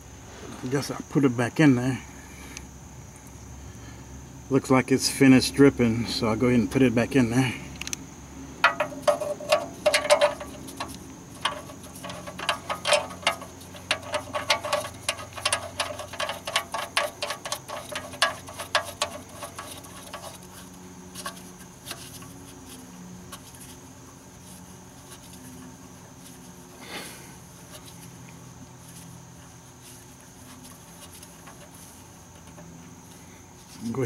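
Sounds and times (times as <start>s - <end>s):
drain plug clicking as spun: 8.6s - 20.6s.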